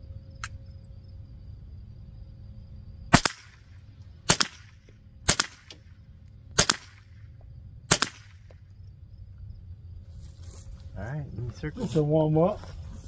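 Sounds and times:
rifle shots: 3.1s - 5.9s, 6.6s - 7.2s, 7.9s - 8.5s.

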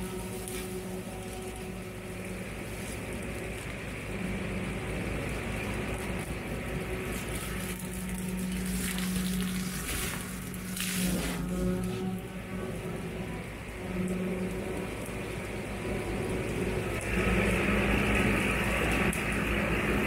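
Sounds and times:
brush cutter shredding brush: 0.0s - 14.0s
tractor diesel engine under load: 0.0s - 20.0s.

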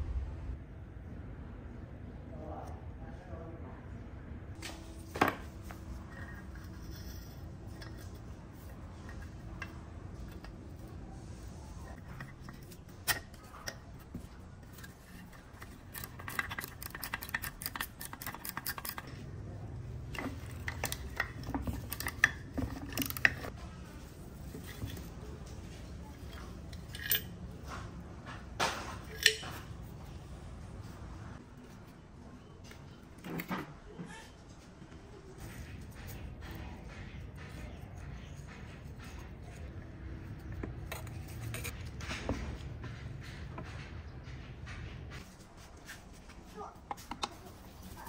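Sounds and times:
low steady hum: 0.0s - 33.7s
metal tools clinking on workbench: 26.2s - 27.8s, 28.7s - 29.7s.

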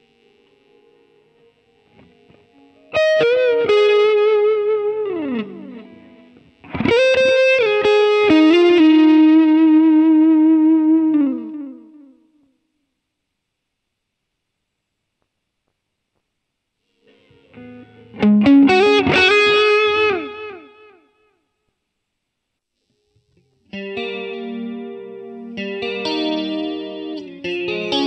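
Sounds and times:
distorted electric guitar lead: 0.0s - 12.5s, 17.0s - 21.1s, 23.2s - 28.0s.

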